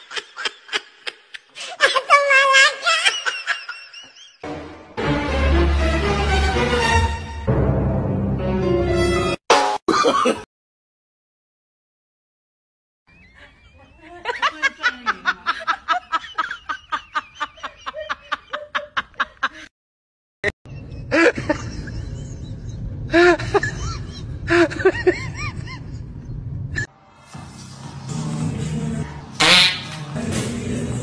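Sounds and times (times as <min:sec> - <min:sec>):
person laughing hard: 0:00.0 - 0:04.4, 0:09.9 - 0:10.5, 0:13.4 - 0:19.7, 0:20.7 - 0:26.1.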